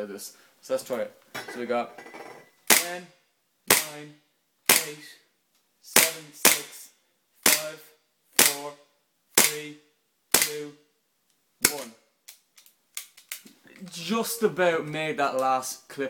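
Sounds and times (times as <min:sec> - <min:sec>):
air pistol shots: 0:02.7 - 0:03.0, 0:03.7 - 0:04.0, 0:06.0 - 0:06.8, 0:08.4 - 0:08.6.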